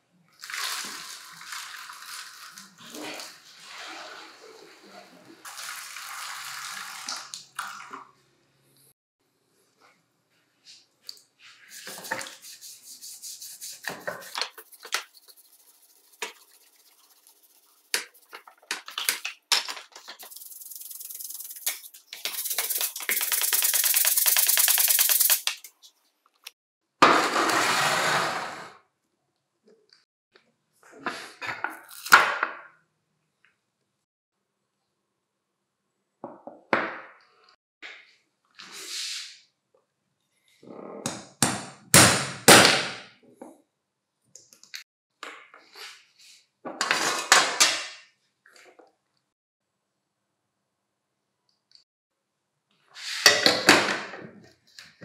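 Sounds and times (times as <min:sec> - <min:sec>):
brush scrubbing wet plastic: 0:00.4 - 0:05.9, 0:11.4 - 0:25.8.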